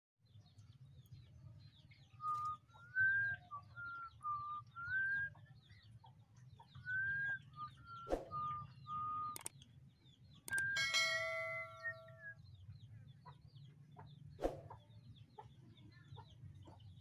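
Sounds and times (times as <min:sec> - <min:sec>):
small birds twittering: 0:00.2 - 0:17.0
sharp click: 0:09.3 - 0:09.7, 0:10.5 - 0:10.9
whistled notes: 0:10.5 - 0:12.4.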